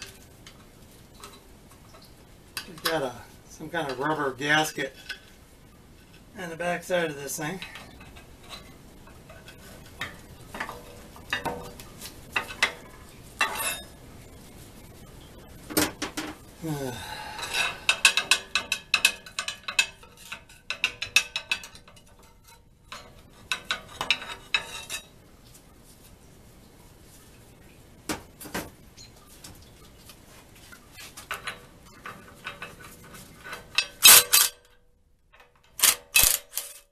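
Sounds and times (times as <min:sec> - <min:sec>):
sharp metal clank: 0:33.7 - 0:34.7.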